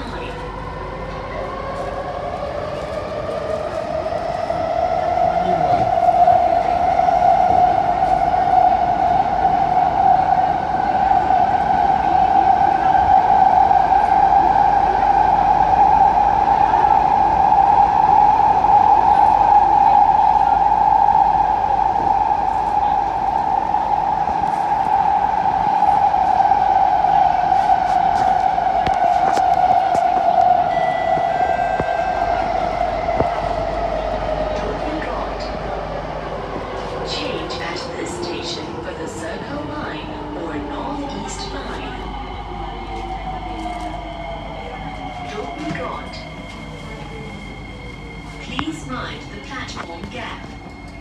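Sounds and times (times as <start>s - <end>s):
train wheels rumbling on track: 0.0s - 51.0s.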